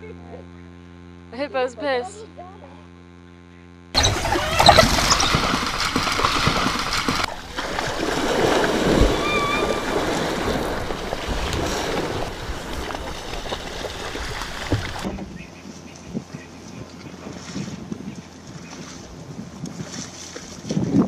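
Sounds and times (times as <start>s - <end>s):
high-pitched animal call: 4.0s - 7.2s, 9.0s - 10.1s
water splashing and sloshing: 4.0s - 15.3s, 17.1s - 21.0s.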